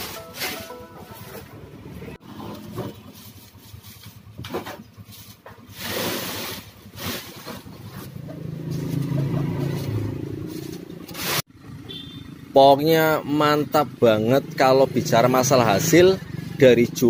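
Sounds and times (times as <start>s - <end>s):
plastic bag rustling and scraping: 0.0s - 9.0s, 9.8s - 11.5s
engine low hum: 0.0s - 17.0s.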